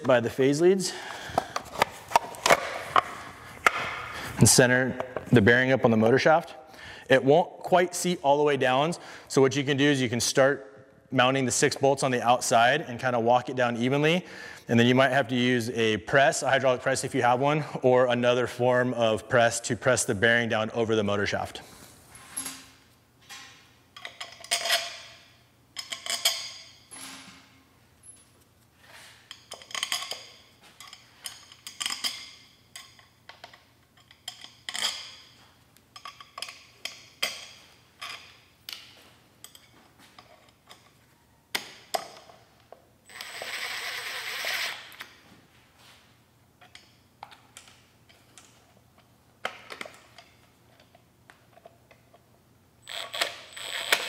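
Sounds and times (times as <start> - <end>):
metal bolts and sockets clinking: 22.3 - 25.2, 25.8 - 28.4, 29.3 - 41.0.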